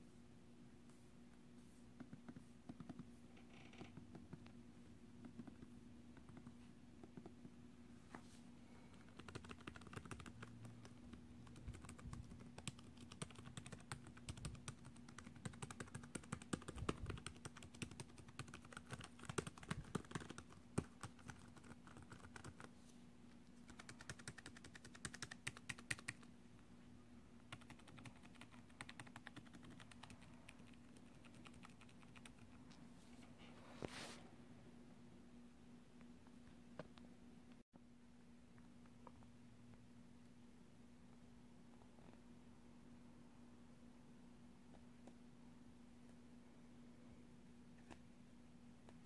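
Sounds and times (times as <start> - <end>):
faint steady hum: 0.0 - 49.0
laptop keyboard typing: 2.0 - 4.6, 5.2 - 7.4, 9.0 - 22.7, 23.6 - 26.3, 27.4 - 32.6.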